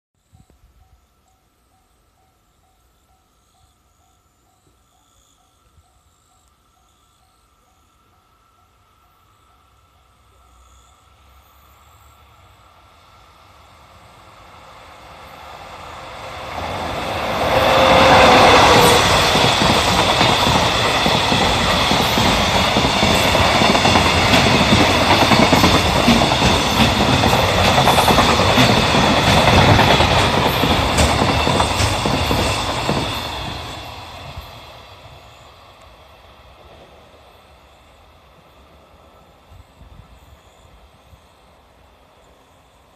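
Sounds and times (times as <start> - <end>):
freight train wheels clacking: 15.5 - 36.0
train wheel squeal: 16.3 - 35.7.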